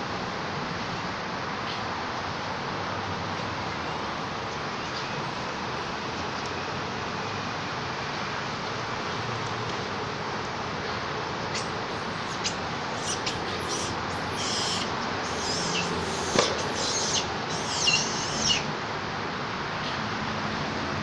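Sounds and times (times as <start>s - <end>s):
squeaky animal calls: 11.5s - 18.7s.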